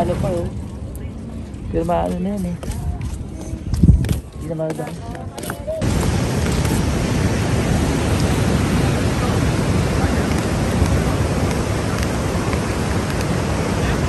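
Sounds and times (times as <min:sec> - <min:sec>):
wind buffeting microphone: 0:00.0 - 0:14.0
ocean surf: 0:05.7 - 0:14.0.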